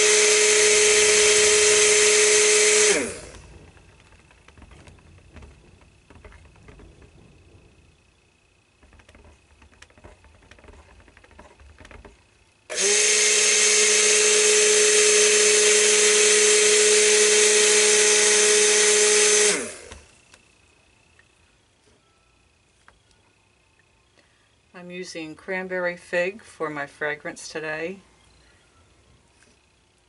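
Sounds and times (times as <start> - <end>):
stick blender running: 0.0 - 7.2, 8.8 - 20.2
light clicks and knocks: 3.4 - 7.8, 8.8 - 12.3.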